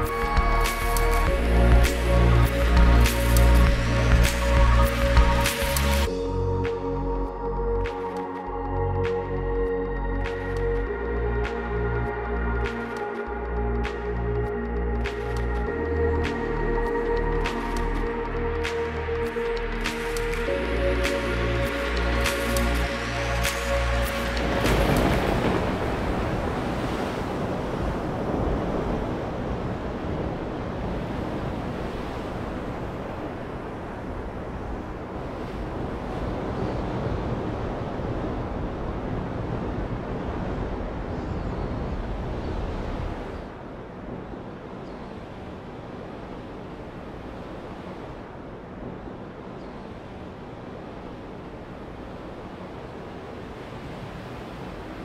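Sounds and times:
waves washing on sandy beach: 0.0s - 6.1s, 19.8s - 55.0s.

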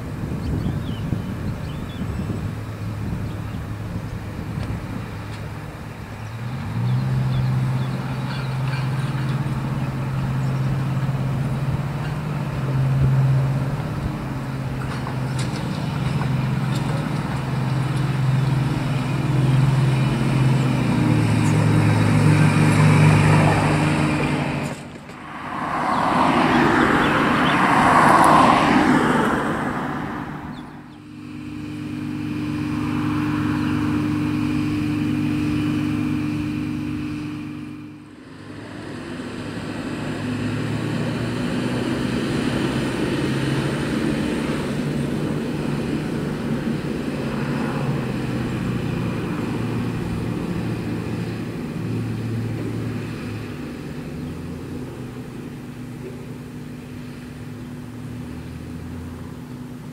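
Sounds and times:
rail car engine humming: 0.0s - 59.9s
loud rushing sound: 22.4s - 34.2s.

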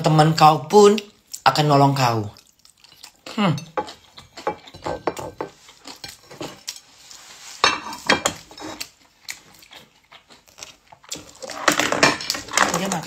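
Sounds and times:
person chewing: 2.2s - 12.6s
clinks and scrapes on ceramic plate: 3.6s - 6.9s, 7.6s - 8.9s.

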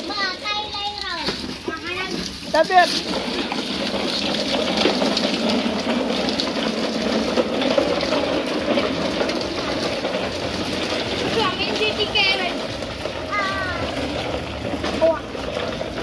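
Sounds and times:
plastic wheels rolling on concrete: 0.0s - 16.0s.

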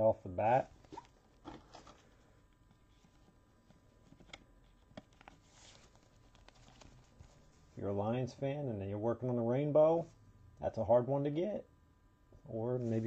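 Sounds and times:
card rustling in plastic holder: 0.8s - 7.6s.

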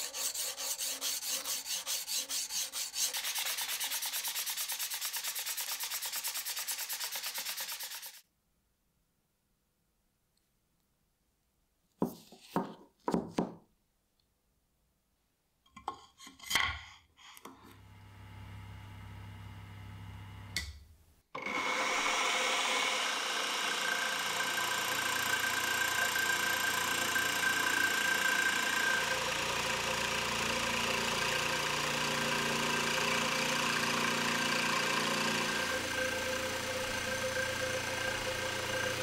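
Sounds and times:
milling machine cutting wood: 21.4s - 39.0s.

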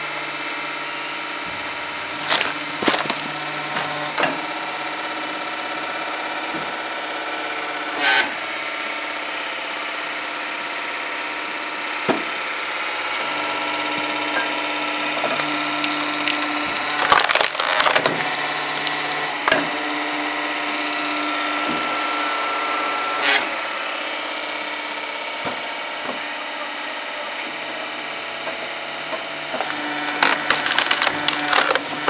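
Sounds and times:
wood splitting machine running: 0.0s - 32.0s
wood cracking and splintering: 1.8s - 4.4s, 15.2s - 19.4s, 29.6s - 32.0s.

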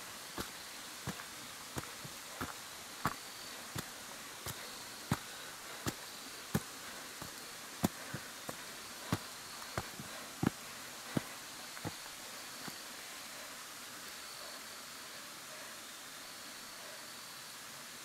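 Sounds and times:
footsteps on stone steps with leaves: 0.0s - 12.9s
high insect trill: 0.0s - 13.1s.

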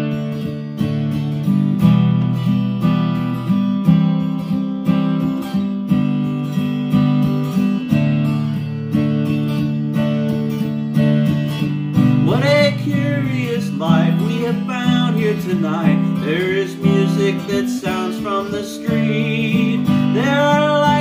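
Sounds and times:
acoustic guitar strumming: 0.0s - 21.0s
man singing: 12.1s - 21.0s.

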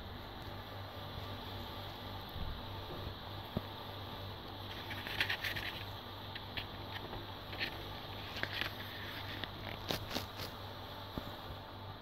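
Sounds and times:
pages turning: 4.7s - 10.6s
paper rustling: 4.7s - 10.6s.

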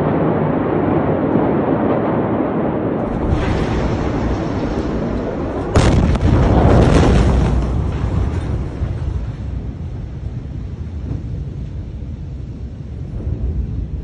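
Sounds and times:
deep rumble: 0.0s - 14.0s
explosion bang: 3.0s - 9.8s.

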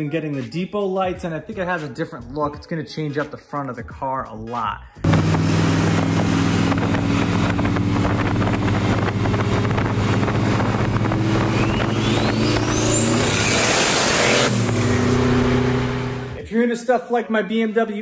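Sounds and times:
deep engine running at low revs: 5.0s - 16.4s
turbo whistle spooling: 11.2s - 15.3s.

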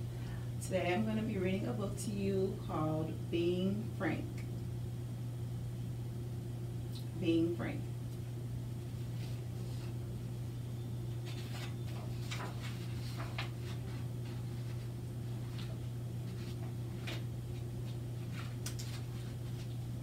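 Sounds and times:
book pages turning: 11.2s - 19.8s.

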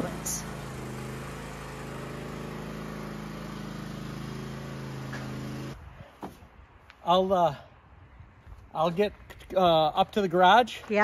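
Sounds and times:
lawn tractor engine humming: 0.0s - 5.9s.

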